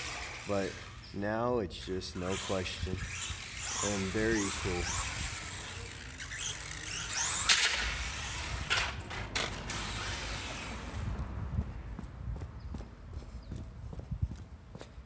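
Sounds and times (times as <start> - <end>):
electric motor whining: 0.0 - 1.2, 2.1 - 11.3
toy truck clattering on concrete: 3.1 - 10.9.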